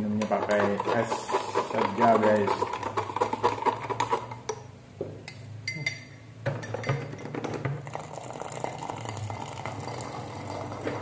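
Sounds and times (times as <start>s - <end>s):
liquid pouring into mug: 7.8s - 11.0s.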